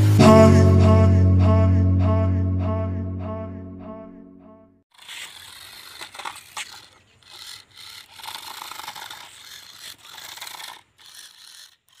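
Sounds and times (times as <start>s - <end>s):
toy car electric motors running: 4.9s - 12.0s
tyres scraping on concrete: 4.9s - 12.0s.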